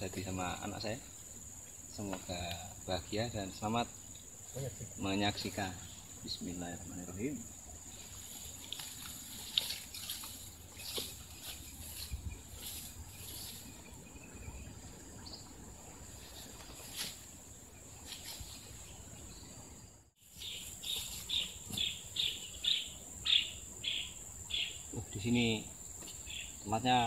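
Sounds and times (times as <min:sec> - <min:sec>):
insect drone: 0:00.0 - 0:27.0
bird chirps: 0:20.3 - 0:25.0, 0:26.0 - 0:26.8.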